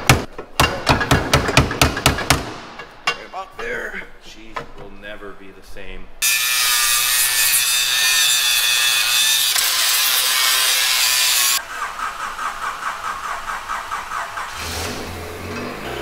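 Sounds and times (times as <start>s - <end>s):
angle grinder cutting steel: 6.2s - 11.6s
car starter cranking engine: 11.6s - 16.0s.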